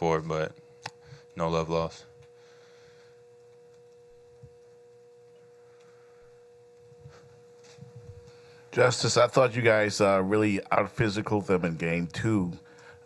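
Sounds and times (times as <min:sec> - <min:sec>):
faint electrical tone: 0:00.0 - 0:13.0.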